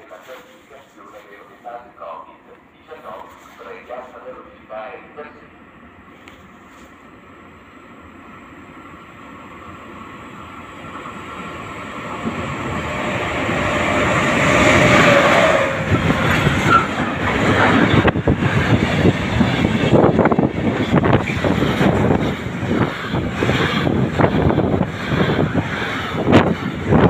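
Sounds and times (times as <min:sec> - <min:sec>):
freight train passing: 0:00.0 - 0:27.0
train wheels clattering on rails: 0:12.1 - 0:27.0.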